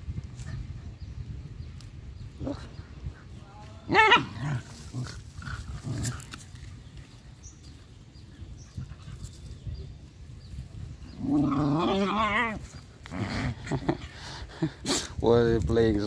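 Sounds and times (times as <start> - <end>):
scuffling in dirt: 3.3 - 13.8
dogs grunting: 3.9 - 6.8, 11.0 - 15.2.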